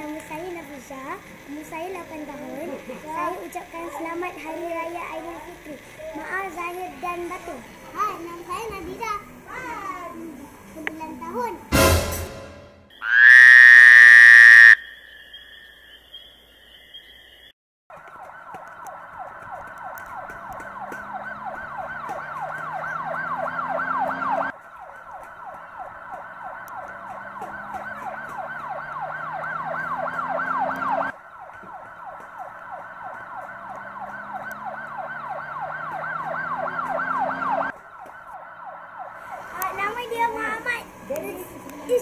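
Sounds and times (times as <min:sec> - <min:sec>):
siren-like wailing sweep: 0:13.0 - 0:14.9, 0:18.2 - 0:39.6.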